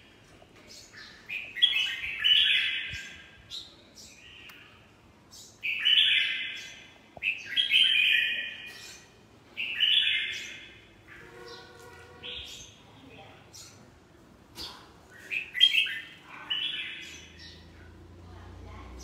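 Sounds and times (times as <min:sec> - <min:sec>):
bird warbling song: 0:14.5 - 0:18.1.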